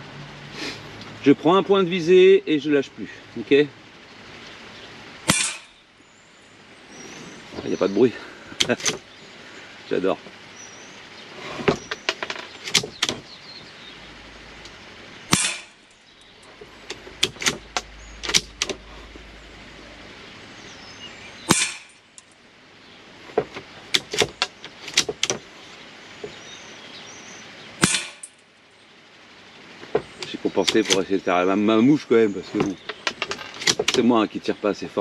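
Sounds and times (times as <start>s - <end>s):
rifle shots: 15.3s - 15.8s, 21.5s - 22.0s.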